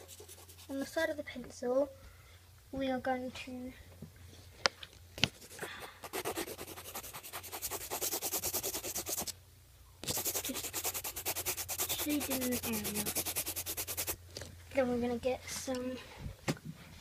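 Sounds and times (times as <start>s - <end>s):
pencil shading on paper: 0.0s - 0.8s, 5.6s - 9.3s, 10.0s - 14.2s.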